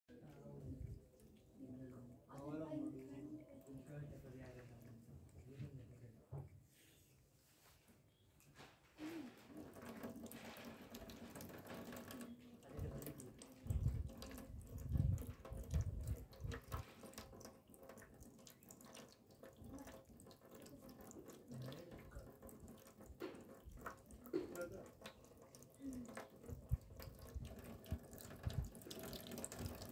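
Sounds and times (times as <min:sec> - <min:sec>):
tap water into metal trough: 0:09.4 - 0:29.9.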